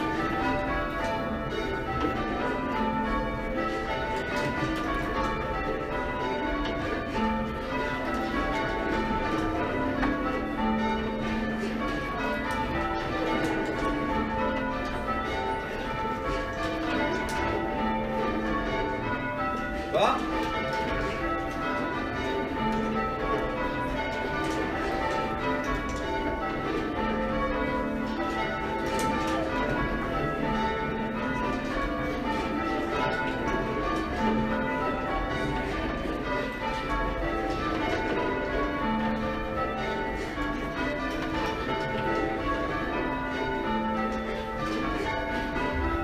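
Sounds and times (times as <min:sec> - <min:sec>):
church bells ringing: 0:00.0 - 0:46.0.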